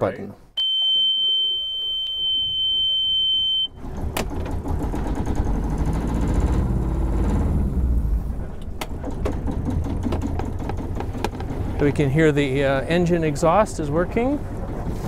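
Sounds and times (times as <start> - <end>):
warning buzzer beeping: 0.6 - 3.7
engine cranking and starting: 3.6 - 12.0
engine idling: 3.6 - 13.3.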